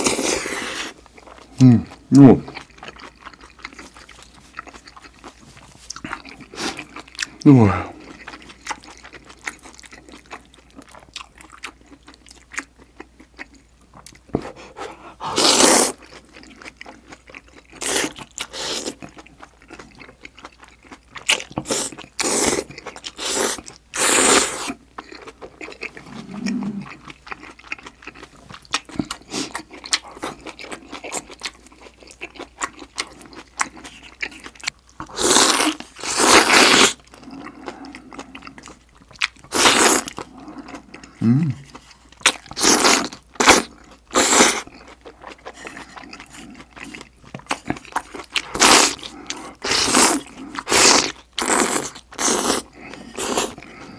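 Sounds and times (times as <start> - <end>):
slurping noodles: 15.0 - 16.0, 21.6 - 24.8, 35.1 - 38.0, 39.5 - 40.9, 48.5 - 53.9.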